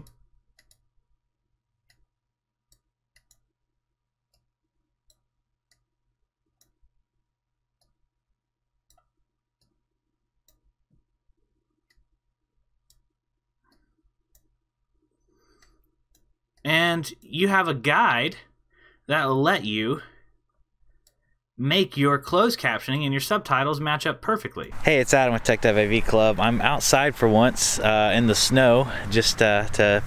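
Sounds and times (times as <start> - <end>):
computer mouse clicks: 0.0 - 0.9, 2.7 - 3.5.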